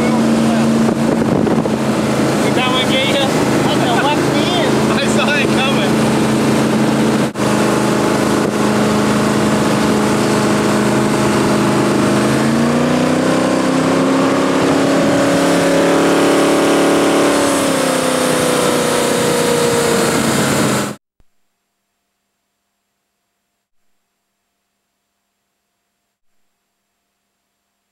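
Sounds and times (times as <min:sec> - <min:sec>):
boat engine running: 0:00.0 - 0:21.0.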